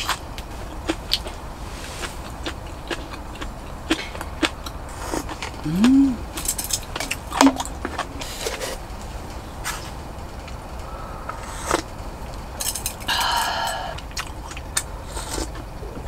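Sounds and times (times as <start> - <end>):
person humming: 5.6 - 6.3
metal utensils clinking on bowl: 12.6 - 13.8.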